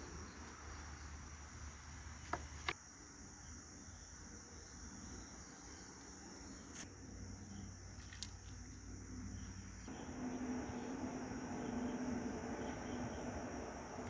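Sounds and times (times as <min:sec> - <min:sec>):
insects chirring: 0:00.0 - 0:14.0
low steady hum: 0:06.5 - 0:14.0.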